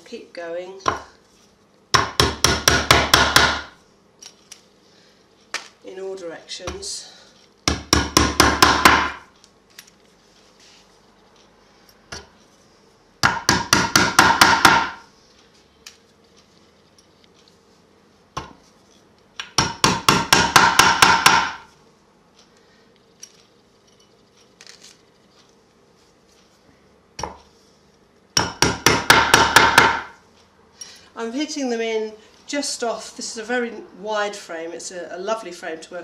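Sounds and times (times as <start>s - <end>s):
hammer tapping tacks into wood: 1.9s - 3.8s, 7.6s - 9.3s, 13.2s - 15.0s, 19.4s - 21.7s, 28.4s - 30.2s.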